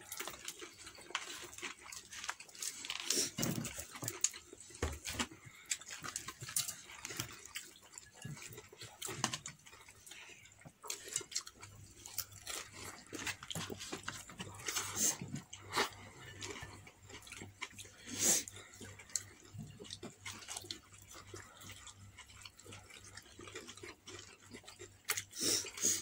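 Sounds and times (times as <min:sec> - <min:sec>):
crispy breading crackling: 0:00.0 - 0:04.7
chewing noises: 0:00.0 - 0:26.0.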